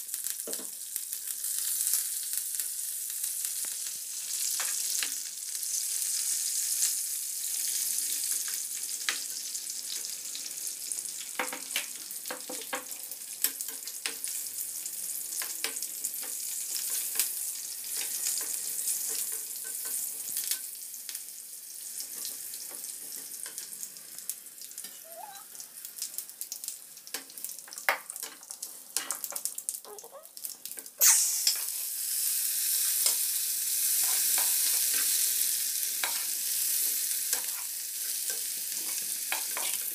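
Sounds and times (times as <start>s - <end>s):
spices sizzling in hot oil: 0.0s - 39.9s
spatula scraping pan: 37.3s - 39.9s.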